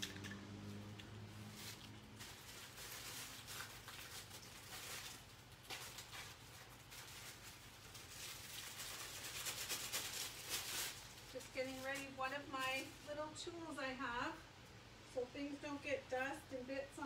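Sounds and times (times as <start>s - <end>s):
low steady hum: 0.0s - 17.0s
faint rustling and scrapes: 1.2s - 13.2s.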